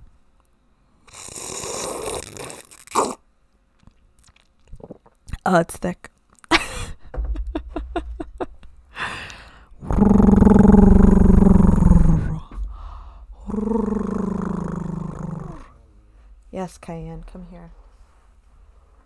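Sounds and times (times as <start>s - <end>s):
dog groaning: 9.8s - 12.5s, 13.4s - 15.9s.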